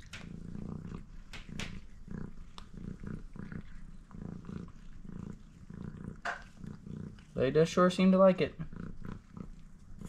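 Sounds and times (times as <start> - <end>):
cat chewing food clicks: 0.0 - 3.8
cat purring: 0.0 - 10.0.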